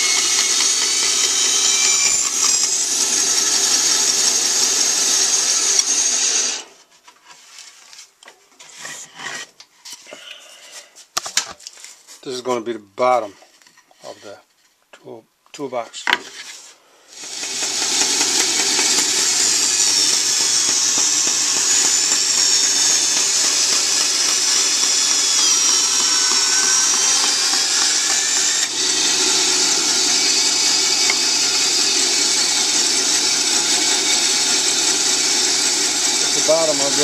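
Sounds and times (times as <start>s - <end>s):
band saw cutting wood: 0.0s - 6.8s, 17.2s - 37.0s.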